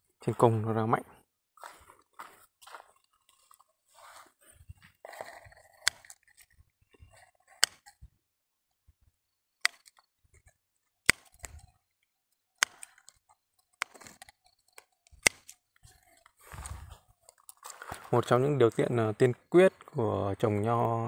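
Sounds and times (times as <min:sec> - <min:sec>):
garden scissors snipping: 0:05.7 - 0:06.4, 0:07.6 - 0:08.0, 0:09.6 - 0:10.0, 0:11.0 - 0:11.6, 0:12.6 - 0:15.6.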